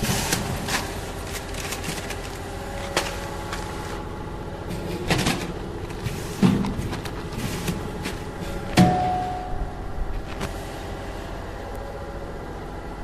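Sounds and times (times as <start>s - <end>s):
plastic bags rustling: 0.0s - 8.8s
packing machine humming: 0.0s - 13.0s.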